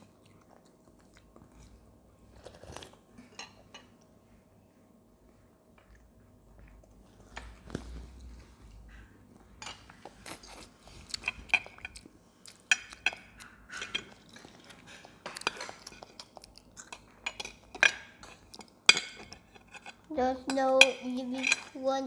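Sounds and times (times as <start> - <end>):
chewing: 0.0 - 4.5, 5.2 - 20.1.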